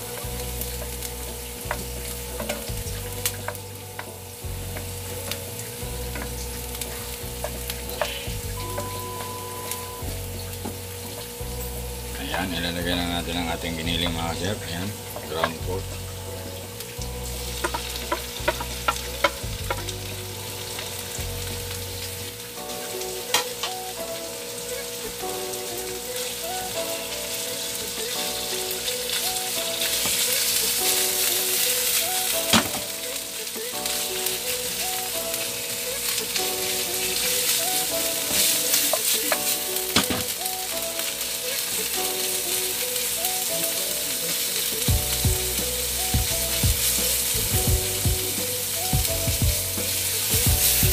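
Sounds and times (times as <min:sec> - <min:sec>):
meat sizzling in a pan: 0:00.0 - 0:50.9
wooden spatula scraping a pan: 0:00.1 - 0:09.4.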